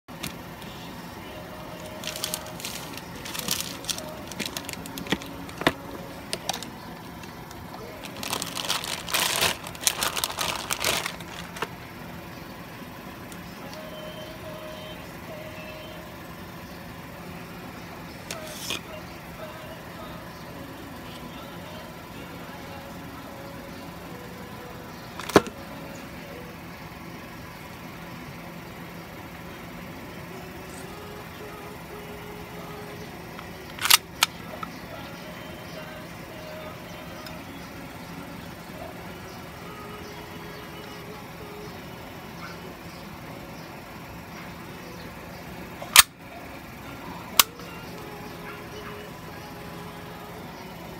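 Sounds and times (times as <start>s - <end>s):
steady low hum: 0.0s - 50.9s
plastic bag crinkling: 1.8s - 5.7s, 8.0s - 11.7s
pistol clicking: 33.8s - 34.3s.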